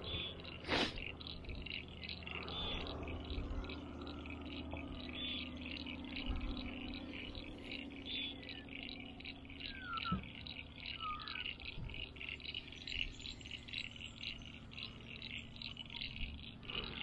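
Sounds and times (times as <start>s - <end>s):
low steady hum: 0.0s - 17.0s
rhythmic chirping chorus: 0.0s - 17.0s
short bird-like chirps: 9.6s - 17.0s.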